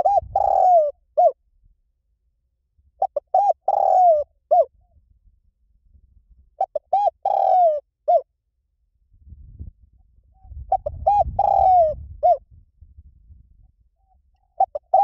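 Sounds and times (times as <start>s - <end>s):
dove cooing: 0.0s - 1.4s, 3.0s - 4.8s, 6.6s - 8.3s, 10.4s - 12.4s, 14.0s - 15.0s.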